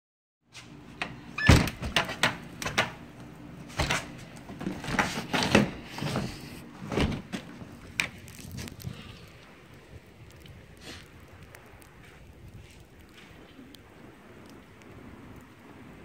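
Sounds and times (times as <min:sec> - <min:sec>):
door squeak: 0:01.4 - 0:01.8.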